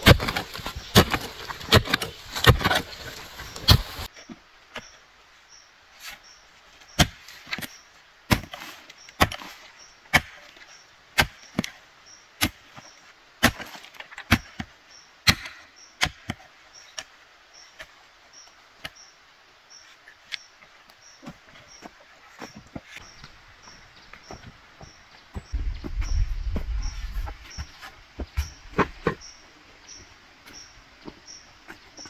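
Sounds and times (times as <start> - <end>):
hoe chopping into soil: 0.0 - 4.1, 7.0 - 10.5, 12.4 - 12.6, 13.4 - 16.4, 26.9 - 29.3.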